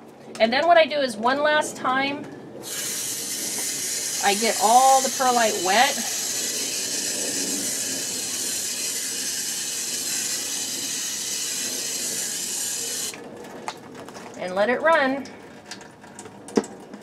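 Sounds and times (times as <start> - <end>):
hose nozzle spraying water: 2.6 - 13.2.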